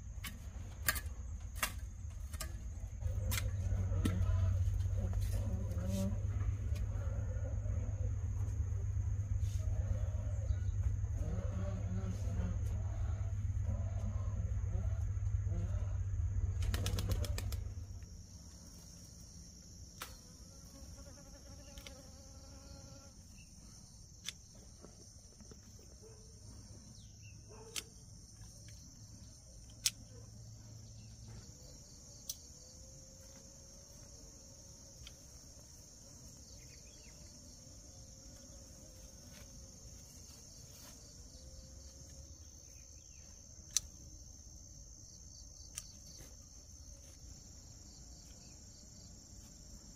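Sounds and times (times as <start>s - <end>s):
low hum: 0.0s - 20.4s.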